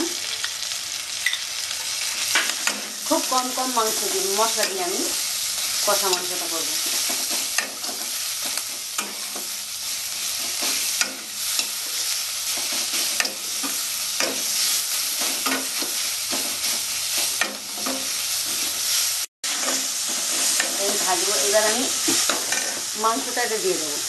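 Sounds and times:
onions sizzling in oil: 0.0s - 24.0s
metal spatula scraping pan: 10.1s - 21.2s, 22.0s - 22.9s.

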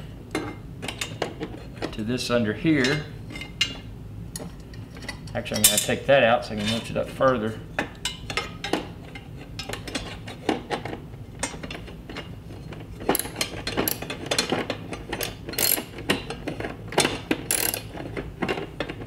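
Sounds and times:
metal clinks and rattles: 13.0s - 16.0s, 17.5s - 17.9s
ratchet wrench clicking: 15.2s - 15.9s, 17.5s - 17.9s.

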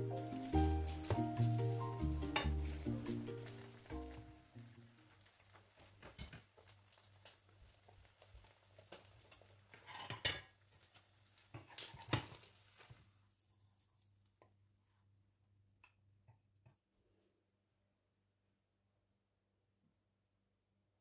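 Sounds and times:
egg frying in a pan: 0.0s - 14.4s
spatula scraping a pan: 9.7s - 10.6s.

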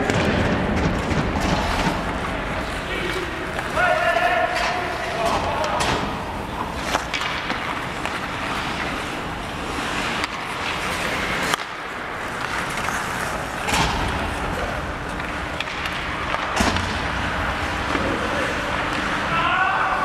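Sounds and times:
skate blades scraping ice: 0.8s - 20.0s
stick and puck knocks: 4.5s - 8.9s, 10.0s - 13.0s, 15.0s - 17.0s.

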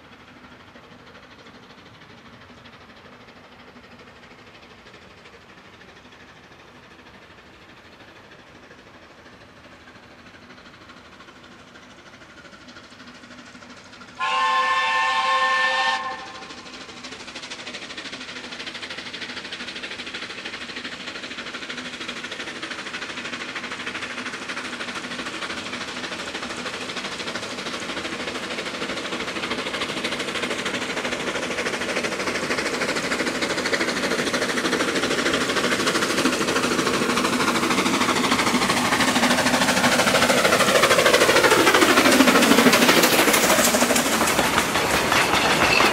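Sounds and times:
train running: 0.0s - 45.9s
steam locomotive whistle: 14.2s - 16.6s.

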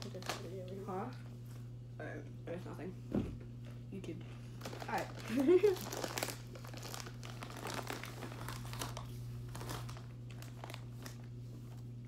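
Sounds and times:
plastic bag crinkling: 0.0s - 0.9s, 4.3s - 11.9s.

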